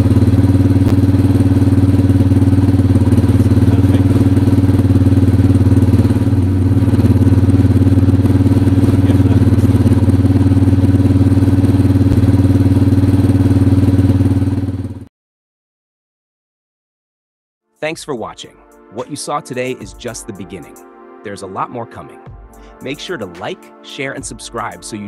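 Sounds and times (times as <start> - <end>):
motorcycle engine idling: 0.0 - 15.1.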